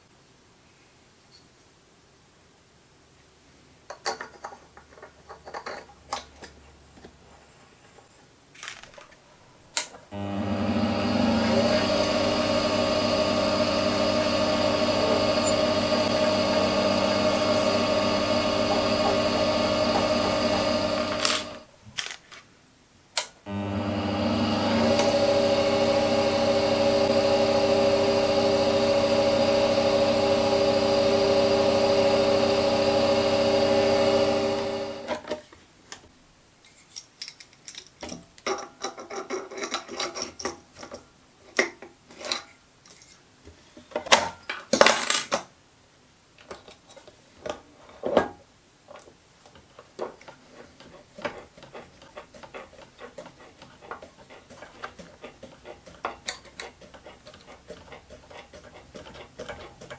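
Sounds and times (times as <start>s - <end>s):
metal tools clicking and knocking: 3.9s - 6.6s, 36.7s - 41.0s
metal lathe motor whine: 10.2s - 21.6s, 23.5s - 35.1s.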